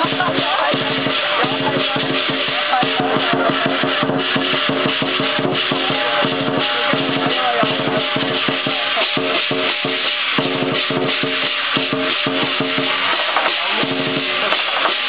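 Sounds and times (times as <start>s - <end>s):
cymbals and gong ringing: 0.0s - 15.0s
drum beating fast: 0.0s - 15.0s.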